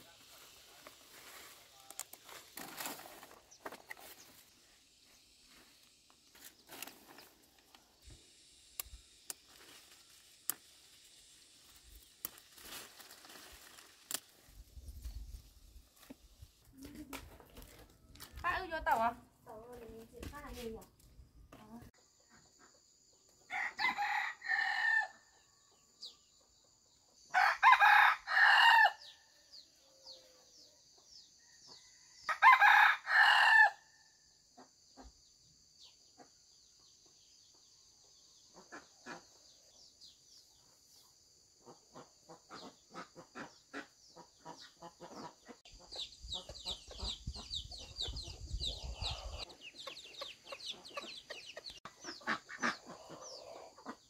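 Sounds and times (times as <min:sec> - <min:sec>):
faint chirps and clucks: 0:14.8 - 0:24.3, 0:25.0 - 0:27.4, 0:29.0 - 0:32.4, 0:34.3 - 0:54.0
rooster crowing: 0:23.5 - 0:25.3, 0:27.3 - 0:29.1, 0:31.7 - 0:33.9.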